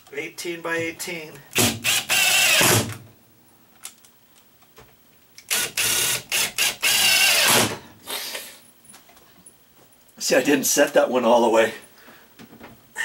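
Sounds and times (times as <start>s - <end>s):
cordless drill driving screws: 1.5s - 3.0s, 5.5s - 7.8s.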